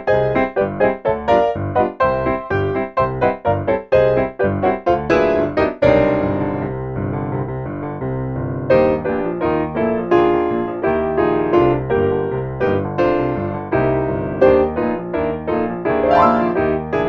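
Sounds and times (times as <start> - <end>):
solo piano: 0.0 - 17.0.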